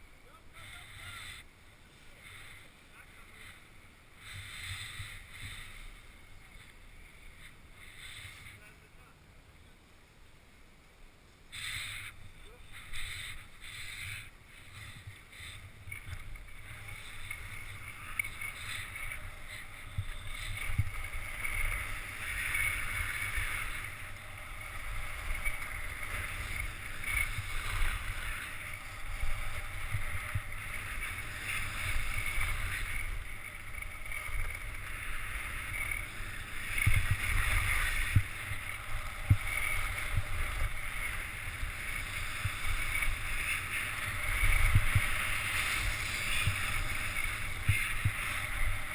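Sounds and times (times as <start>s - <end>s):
skis scraping on snow: 0.0s - 9.2s, 11.3s - 48.9s
wind rumbling on microphone: 11.4s - 48.9s.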